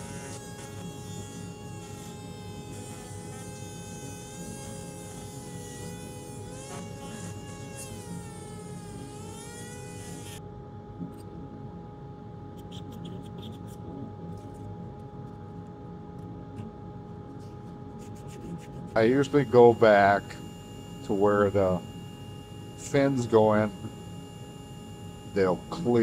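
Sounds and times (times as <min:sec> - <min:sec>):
rotary carving tool whining: 0:00.0 - 0:10.4, 0:18.1 - 0:26.0.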